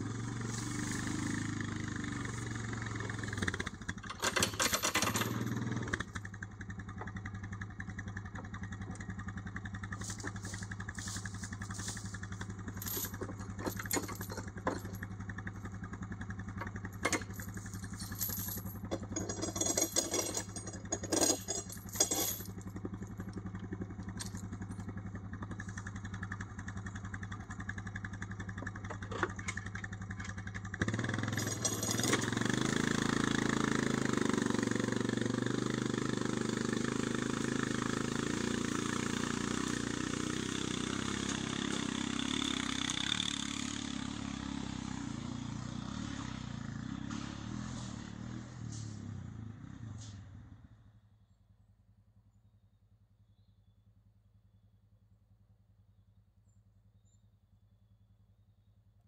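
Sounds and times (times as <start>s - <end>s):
atv engine idling and revving: 0.0s - 59.0s
sharp knocks and rattles: 3.2s - 6.2s, 9.9s - 15.3s, 16.4s - 24.9s, 28.5s - 32.8s.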